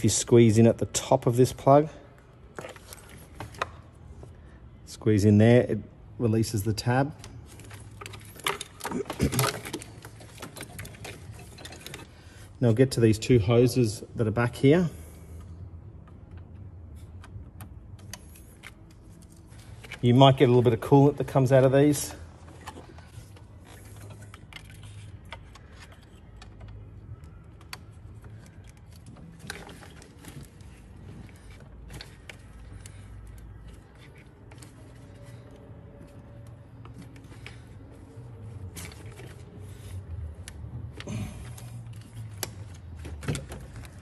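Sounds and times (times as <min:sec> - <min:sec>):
clamps and hose fittings rattling: 0:07.6 - 0:12.2.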